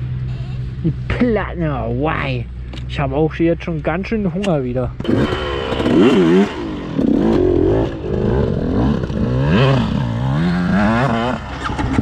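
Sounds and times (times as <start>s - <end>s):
motocross bike engine revving: 5.0s - 12.0s.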